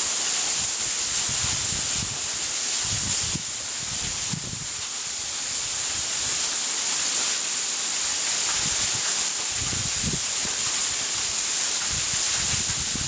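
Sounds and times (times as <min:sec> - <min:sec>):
wind rumble on microphone: 0:00.6 - 0:04.9, 0:08.5 - 0:13.0.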